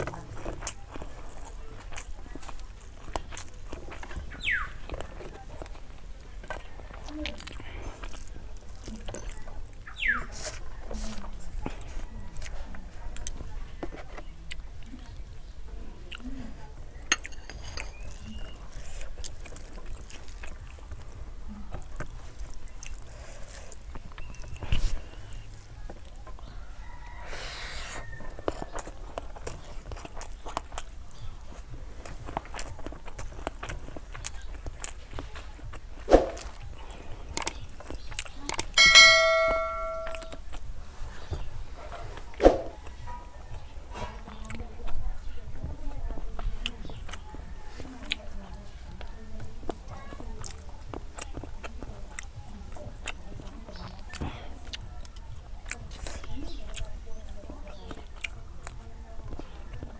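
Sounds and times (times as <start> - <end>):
fingers squishing food: 0.0 - 59.9
bright bell ding: 38.8 - 40.4.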